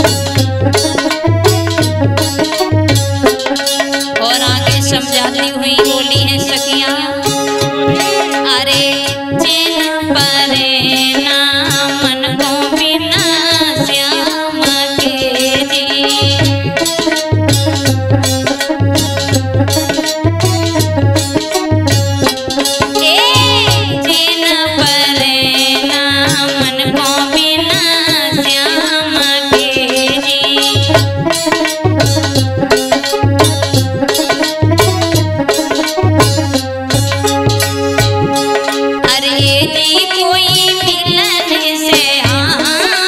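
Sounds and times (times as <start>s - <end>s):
steady drum beat: 0.0s - 9.7s, 16.2s - 28.7s, 29.6s - 39.7s
wavering melodic lead: 5.4s - 9.6s, 22.8s - 24.8s.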